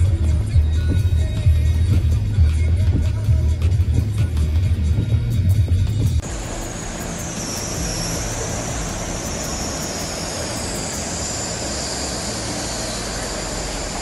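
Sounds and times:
heavy rain pouring: 6.2 - 10.9
floodwater rushing: 6.2 - 14.0.

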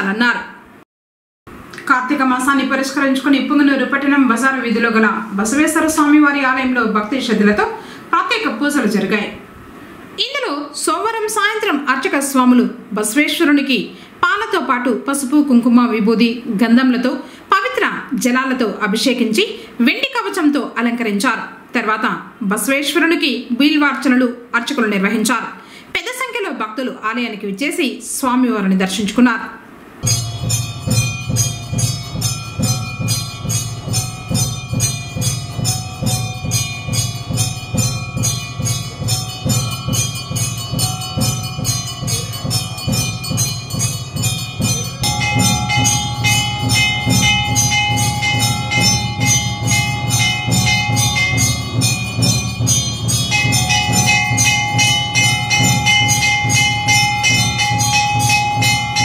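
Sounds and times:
hand bell ringing rapidly: 30.0 - 59.0.

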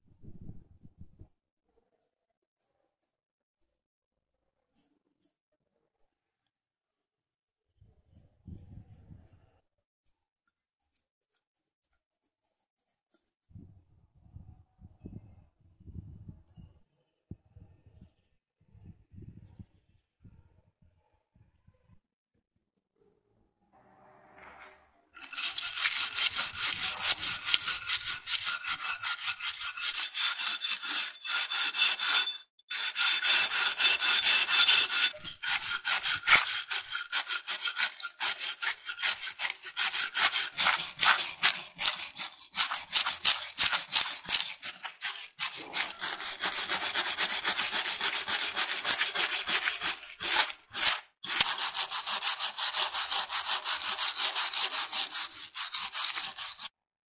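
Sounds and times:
wire brush scrubbing rust: 25.2 - 56.7.

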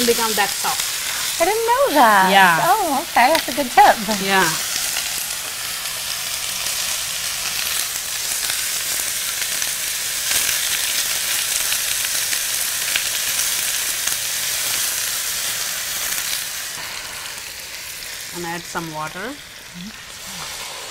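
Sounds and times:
apple pieces sizzling in a pan: 0.0 - 20.9.

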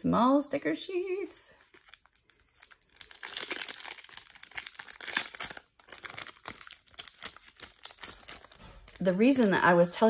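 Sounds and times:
packaging crinkling: 1.7 - 9.7.

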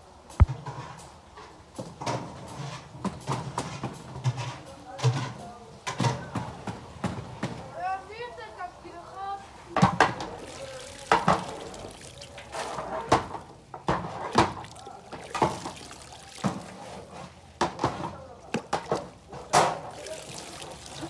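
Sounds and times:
ladle knocking on basin: 9.8 - 17.0
metal ladle splashing in water: 10.0 - 17.2, 17.8 - 21.0.

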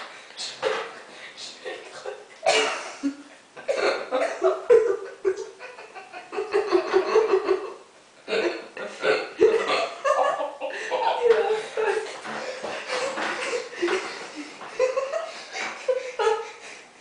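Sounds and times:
person laughing: 4.2 - 7.8, 9.4 - 16.9.

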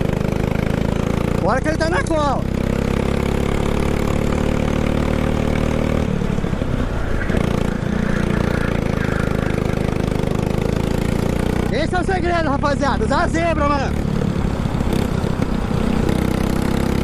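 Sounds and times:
go-kart engine revving: 0.0 - 17.0.

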